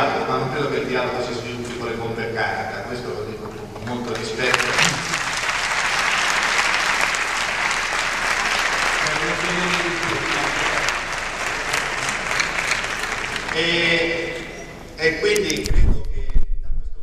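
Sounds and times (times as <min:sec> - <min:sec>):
audience applauding: 0:03.8 - 0:14.6.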